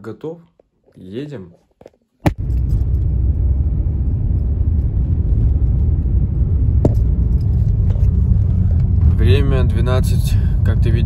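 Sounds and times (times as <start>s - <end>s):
car driving rumble: 2.3s - 11.0s.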